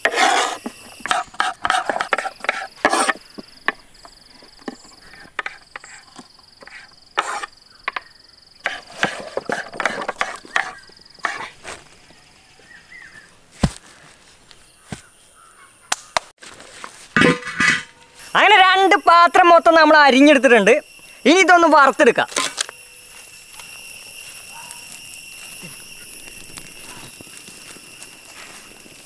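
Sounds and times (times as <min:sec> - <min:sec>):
thin high tone: 0:00.0 - 0:03.8, 0:17.2 - 0:29.0.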